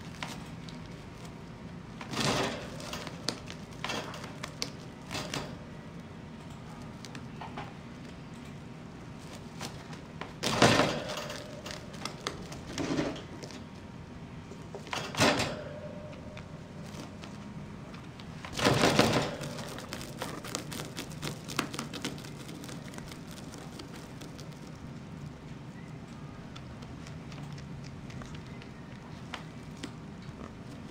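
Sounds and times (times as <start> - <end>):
rabbit chewing dry hay: 18.0 - 30.9
loud crunching: 18.5 - 25.0.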